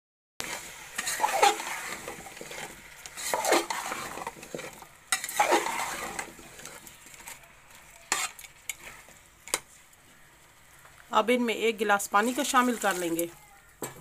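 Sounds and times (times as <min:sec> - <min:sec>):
metal spatula scraping a pot: 0:00.4 - 0:10.3, 0:12.1 - 0:13.4
light sizzle: 0:00.4 - 0:14.0.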